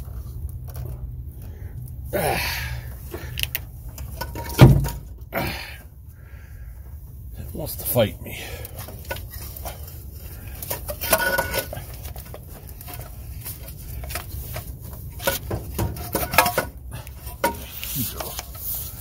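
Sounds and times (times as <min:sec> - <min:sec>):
steady low rumble: 0:00.0 - 0:19.0
metal clanks and scrapes: 0:03.9 - 0:05.2, 0:08.8 - 0:19.0.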